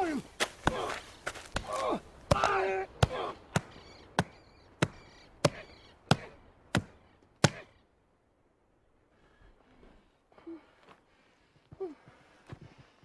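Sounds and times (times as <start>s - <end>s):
sharp thumps of blows: 0.4s - 7.7s
person shouting: 1.6s - 3.4s.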